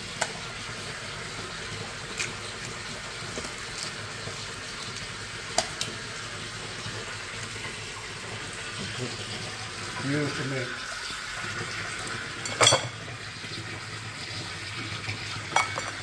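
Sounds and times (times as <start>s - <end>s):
sharp clicks of crab handled: 5.6s - 5.9s
running water splashing: 6.0s - 16.0s.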